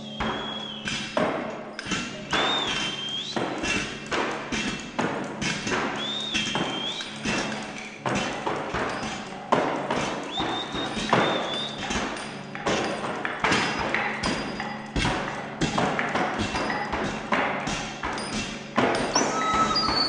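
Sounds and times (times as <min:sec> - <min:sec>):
irregular knocks and thuds: 0:00.2 - 0:20.0
high steady tone: 0:19.2 - 0:20.0.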